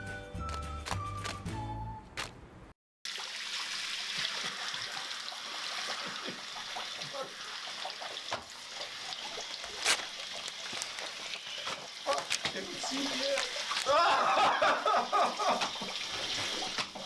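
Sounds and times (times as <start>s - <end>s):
water splashing: 3.1s - 17.0s
shower spray running: 8.8s - 13.9s.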